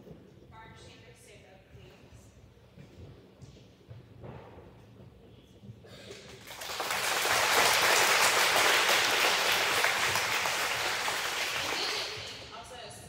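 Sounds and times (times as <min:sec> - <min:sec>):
children applauding: 0:06.1 - 0:12.4.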